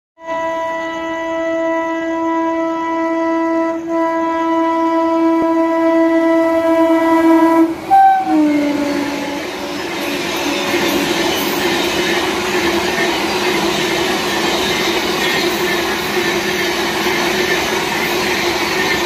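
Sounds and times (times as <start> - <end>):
locomotive horn blast: 0.2 - 11.2
train wheels on rail: 5.0 - 19.0.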